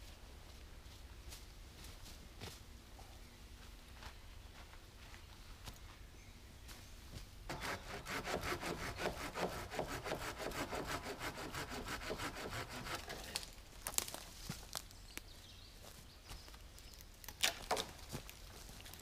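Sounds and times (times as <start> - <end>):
hand saw cutting wood: 7.5 - 13.5
wood cracking: 17.2 - 19.0.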